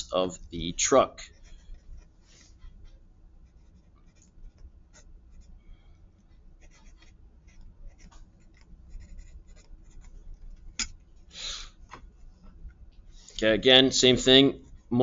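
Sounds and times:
pencil writing on paper: 0:01.2 - 0:05.6, 0:06.2 - 0:10.3.

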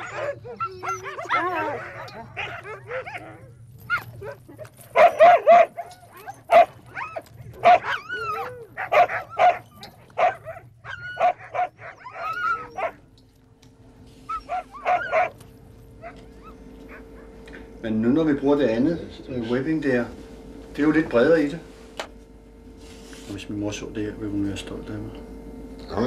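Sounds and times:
dogs barking and yelping: 0:00.0 - 0:13.4, 0:14.0 - 0:17.5.

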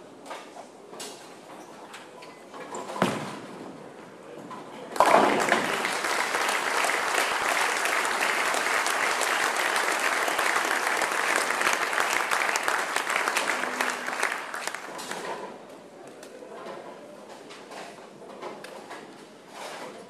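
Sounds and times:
crowd applauding: 0:05.0 - 0:15.3.

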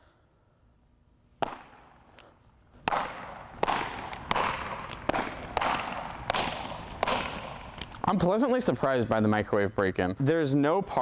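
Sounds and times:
baseballs smacking into leather gloves: 0:01.4 - 0:08.3.

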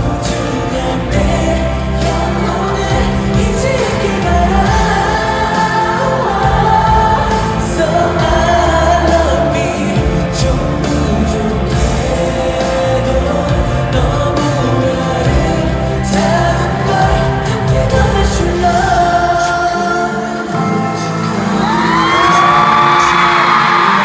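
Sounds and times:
amplified band playing: 0:00.0 - 0:24.0
man singing pop ballad: 0:00.0 - 0:24.0.

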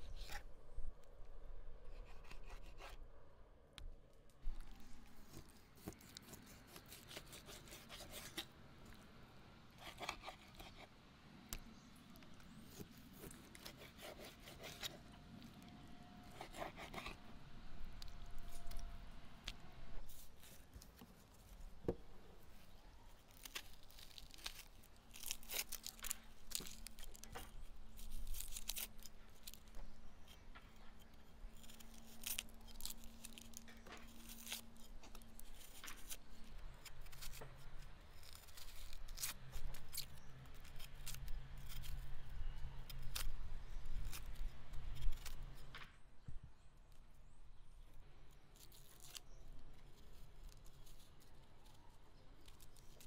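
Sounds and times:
knife scraping and cutting: 0:00.0 - 0:00.5, 0:01.9 - 0:03.0, 0:05.3 - 0:08.5, 0:09.8 - 0:10.9, 0:12.5 - 0:15.6, 0:16.2 - 0:17.2, 0:23.3 - 0:45.7
onion skin tearing and crackling: 0:04.5 - 0:08.5, 0:22.6 - 0:45.8, 0:48.3 - 0:53.0.

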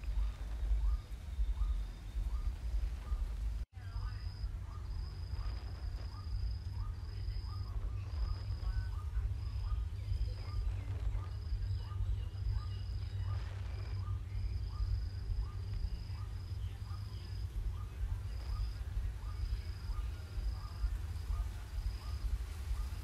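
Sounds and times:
crickets trilling: 0:00.0 - 0:23.0
short insect calls: 0:00.0 - 0:23.0
steady low rumble: 0:00.0 - 0:23.0.

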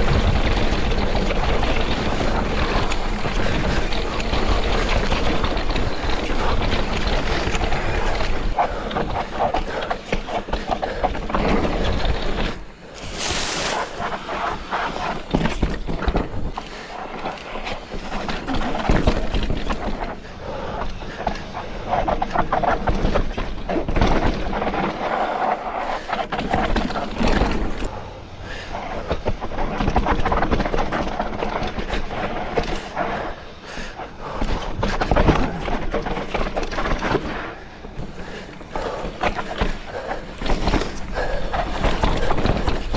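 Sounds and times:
bike rattles and knocks: 0:00.0 - 0:42.9
tyres crunching over dirt and rock: 0:10.2 - 0:16.6.

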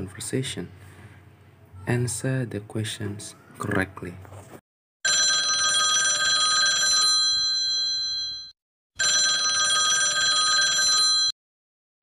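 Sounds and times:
telephone bell ringing: 0:05.0 - 0:11.4.

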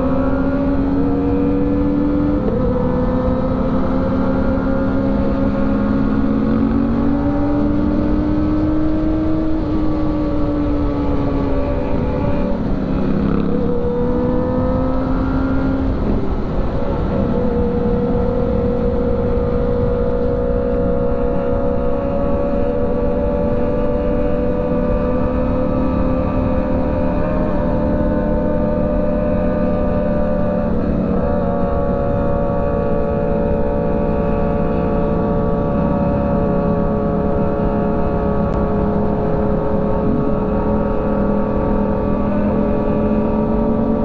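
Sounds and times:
motorcycle engine cruising: 0:00.0 - 0:44.0
wind and road rush: 0:00.0 - 0:44.0.

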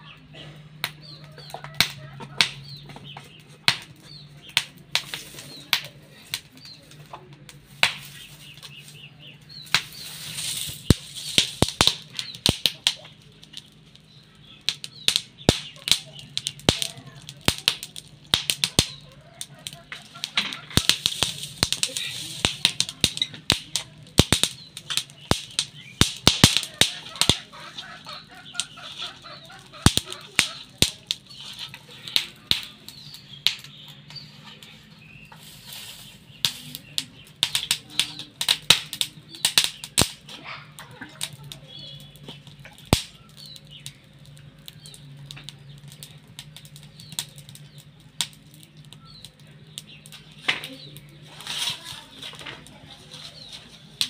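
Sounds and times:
hands mixing wet batter: 0:01.0 - 0:38.3.

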